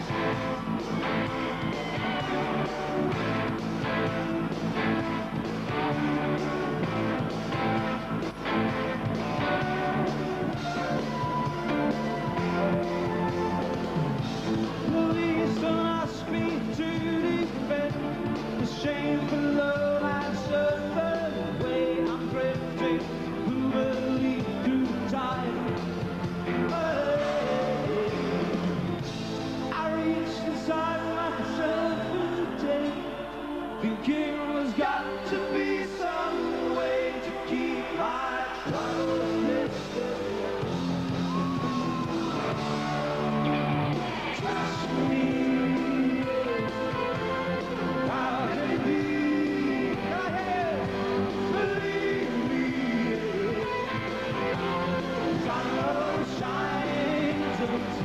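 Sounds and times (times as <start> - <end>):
rock band playing: 0.0 - 32.4, 38.6 - 58.0
electric guitar chords: 0.0 - 35.6, 36.2 - 58.0
man singing: 14.5 - 41.4, 44.2 - 58.0.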